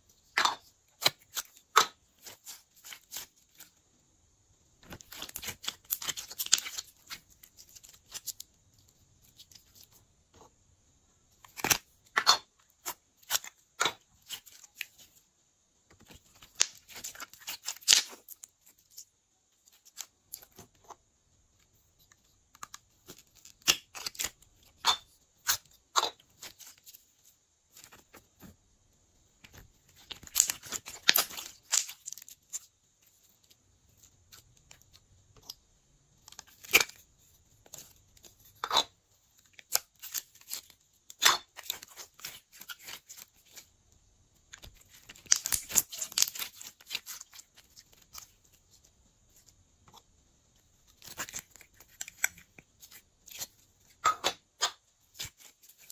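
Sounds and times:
slime clicking and squelching: 44.4s - 48.8s.

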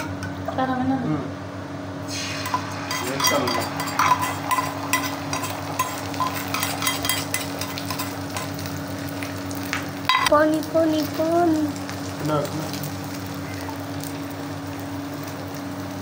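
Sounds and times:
egg sizzling in hot oil: 2.0s - 16.0s
knife scraping a steel bowl: 2.4s - 8.5s.

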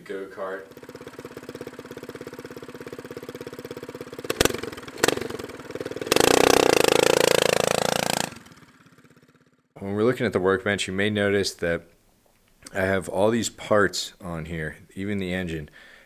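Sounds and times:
small engine idling and revving: 0.4s - 9.8s.

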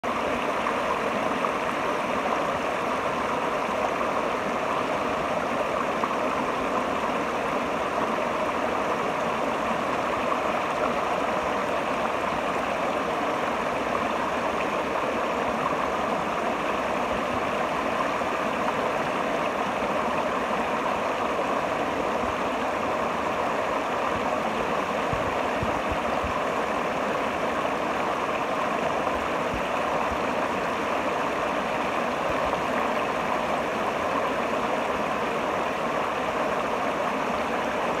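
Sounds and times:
river water rushing over rocks: 0.0s - 38.0s.

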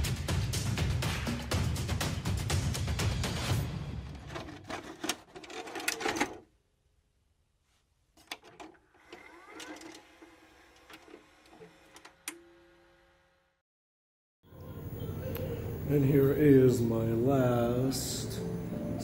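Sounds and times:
whirr with rising whine: 8.8s - 13.6s.

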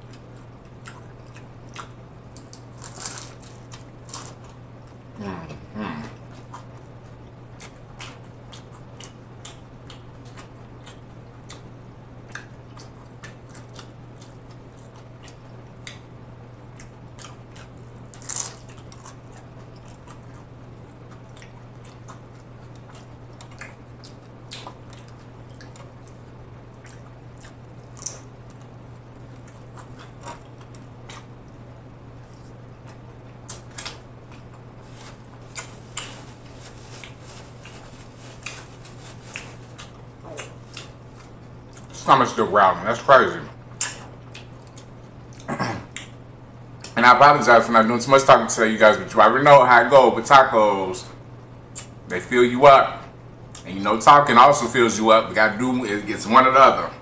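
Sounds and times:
crunchy taco chewing: 0.0s - 5.1s, 6.0s - 42.1s, 42.9s - 47.0s
steady low hum: 0.0s - 57.0s.

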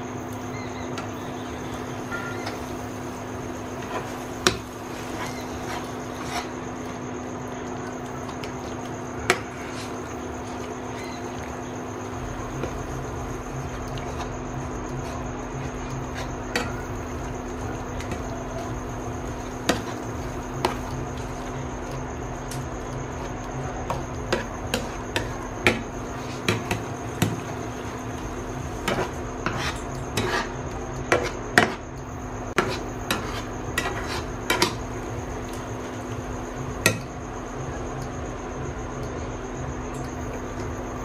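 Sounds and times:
faint high whine: 0.0s - 41.0s
steady hum: 0.0s - 41.0s
spatula tapping and scraping pan: 15.0s - 18.7s, 19.3s - 21.5s, 23.9s - 28.0s, 28.7s - 31.9s, 32.5s - 35.7s.

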